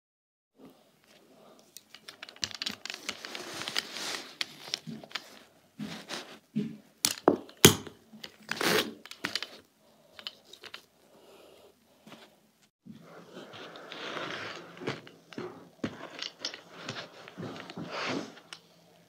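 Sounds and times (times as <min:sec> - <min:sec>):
rustling and crackling: 0:00.7 - 0:07.6, 0:12.0 - 0:19.0.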